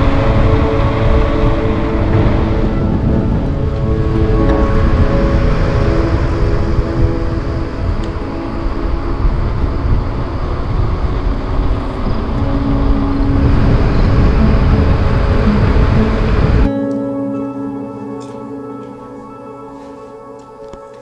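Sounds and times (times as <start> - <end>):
wind rushing over microphone: 0.0 - 16.7.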